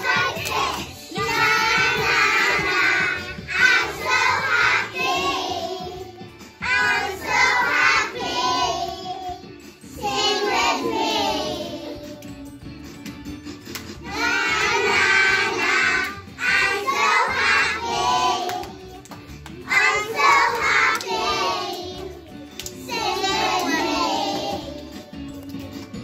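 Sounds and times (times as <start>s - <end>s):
children singing together: 0.0s - 12.2s, 14.0s - 18.9s, 19.7s - 22.2s, 22.8s - 24.8s.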